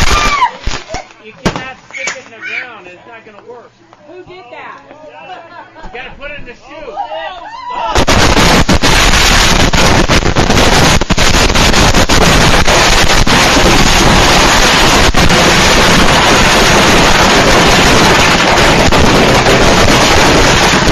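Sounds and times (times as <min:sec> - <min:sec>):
fireworks roaring and banging: 0:00.0 - 0:02.1, 0:07.9 - 0:20.9.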